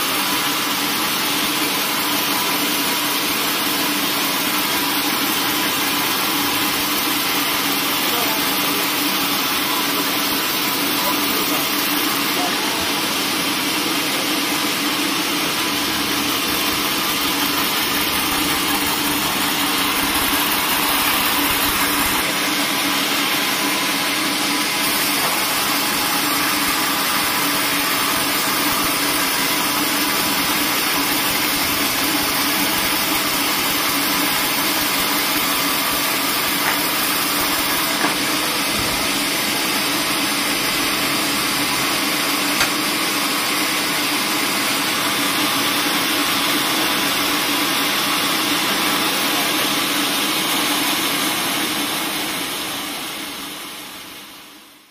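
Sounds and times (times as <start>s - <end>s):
band sawmill running: 0.0s - 54.8s
blade cutting through timber: 13.8s - 39.5s.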